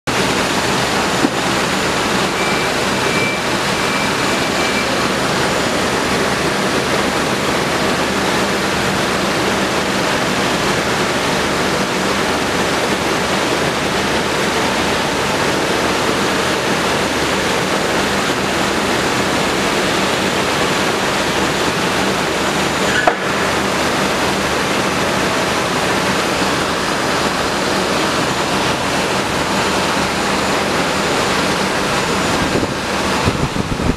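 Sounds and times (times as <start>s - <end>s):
conveyor running: 0.1s - 33.9s
pedestal fan blowing: 0.1s - 33.9s.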